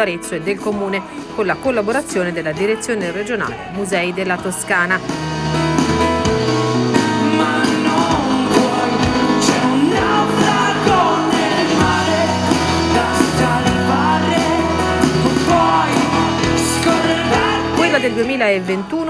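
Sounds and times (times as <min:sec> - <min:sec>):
acoustic guitar: 0:00.0 - 0:19.0
bass guitar: 0:00.0 - 0:19.0
drums: 0:00.0 - 0:19.0
man singing: 0:06.9 - 0:19.0.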